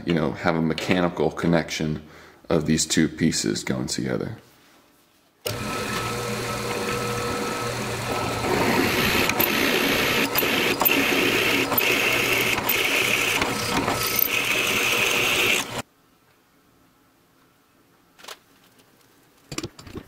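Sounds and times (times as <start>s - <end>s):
drill bit scraping through steel: 5.5s - 15.8s
drill press motor whir: 5.5s - 15.8s.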